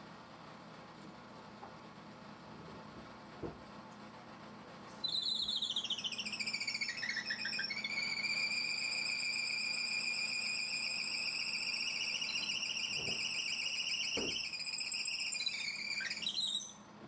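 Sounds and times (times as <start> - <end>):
drill press squealing: 5.0 - 16.9.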